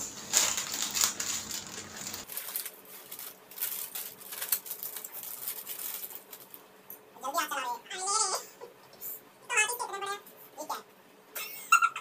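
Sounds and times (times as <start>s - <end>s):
plastic packet crinkling: 0.0s - 6.6s.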